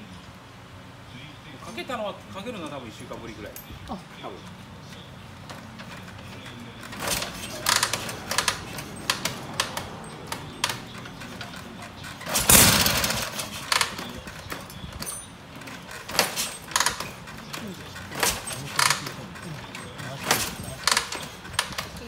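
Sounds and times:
motorcycle kick-start clanks: 5.5 - 22.0.

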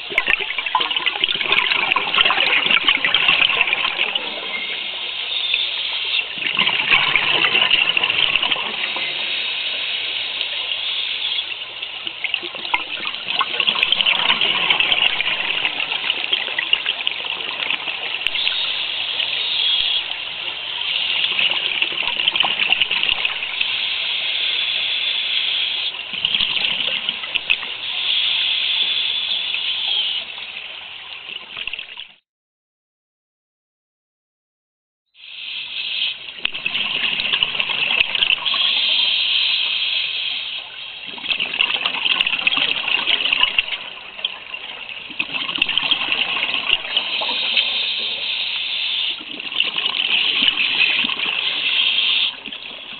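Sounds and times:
exhaled bubbles gushing: 0.0 - 9.5, 12.0 - 23.8, 25.9 - 28.5, 36.2 - 39.8, 40.5 - 52.9
underwater regulator breathing: 46.7 - 49.3.

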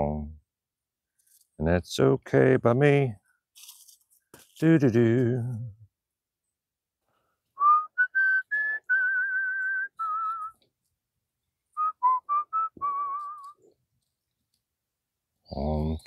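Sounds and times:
person whistling a tune: 7.6 - 10.6, 11.8 - 13.6.

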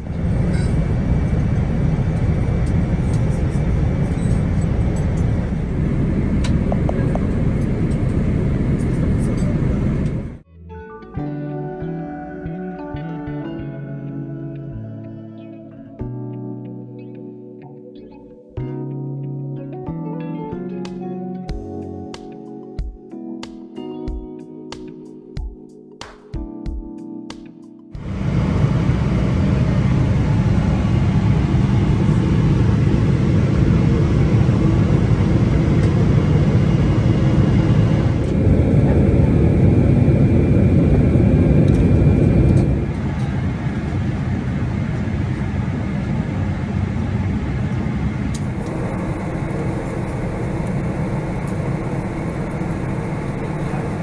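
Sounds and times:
airplane cabin engine hum: 0.0 - 10.4, 28.0 - 54.0
airflow rushing: 48.4 - 54.0.

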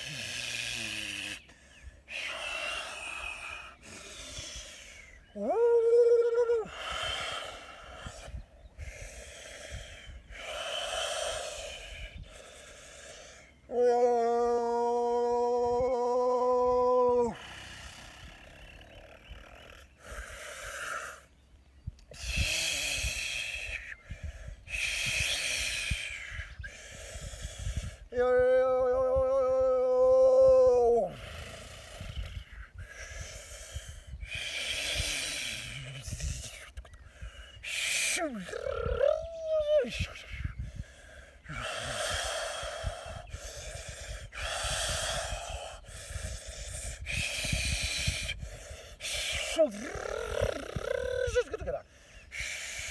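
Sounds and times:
man's breathy hissing exhalations: 0.0 - 5.2, 6.7 - 13.5, 22.1 - 28.0, 31.2 - 38.3, 40.2 - 50.6, 51.8 - 52.9.

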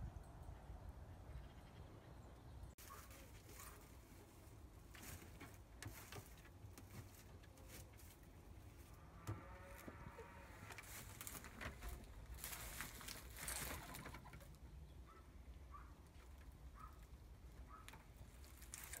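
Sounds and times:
straw rustling: 2.8 - 14.6, 16.1 - 19.0.

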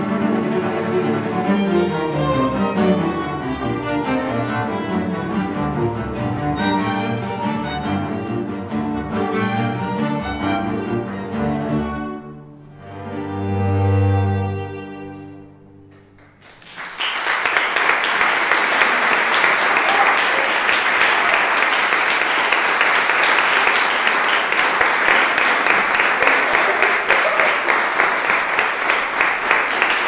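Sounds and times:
string ensemble chord: 0.0 - 15.8
audience applause: 15.9 - 30.0.

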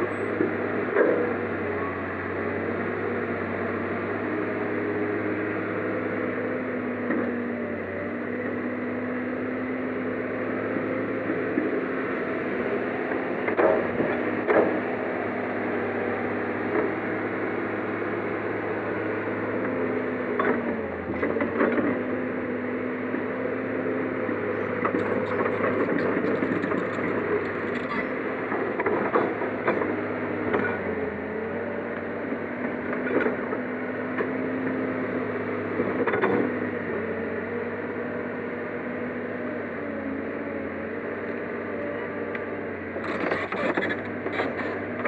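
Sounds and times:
excavator diesel engine running: 0.0 - 45.0.

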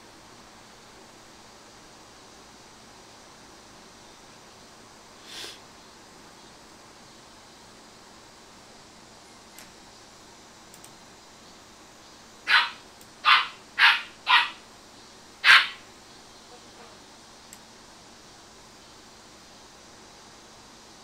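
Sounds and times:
dog barking: 12.5 - 14.6, 15.4 - 15.8.

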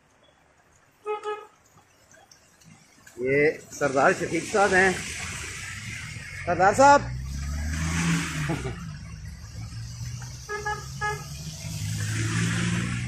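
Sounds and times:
vehicles passing on wet road: 0.0 - 13.0
vehicle horn toots: 1.0 - 1.6, 10.4 - 11.4.

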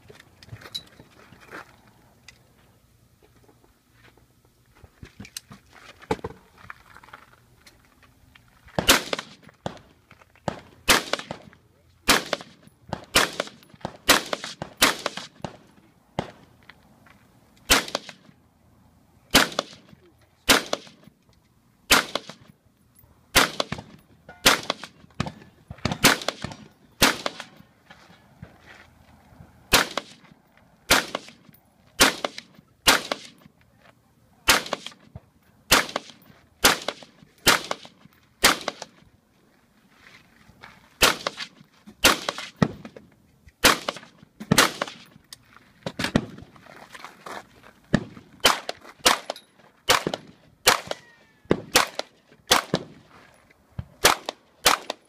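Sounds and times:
rifle shots: 8.8 - 9.8, 10.5 - 11.5, 12.1 - 15.6, 17.7 - 18.2, 19.3 - 19.9, 20.5 - 21.0, 21.9 - 22.5, 23.3 - 27.6, 29.7 - 30.2, 30.9 - 31.4, 32.0 - 33.4, 34.5 - 35.0, 35.7 - 38.9, 41.0 - 42.8, 43.6 - 45.1, 48.0 - 53.0, 54.0 - 55.0.

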